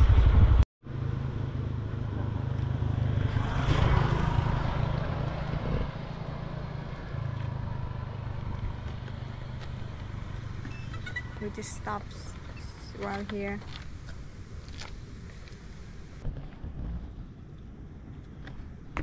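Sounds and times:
motorcycle engine rumble: 0.0s - 19.0s
wind on microphone: 3.1s - 8.8s, 11.5s - 19.0s.

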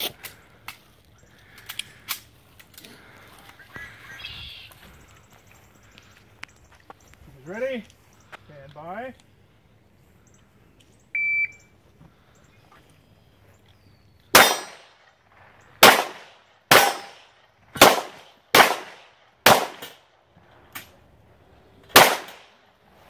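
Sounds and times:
pistol shots with echo: 14.3s - 15.0s, 15.8s - 20.0s, 21.9s - 22.6s.

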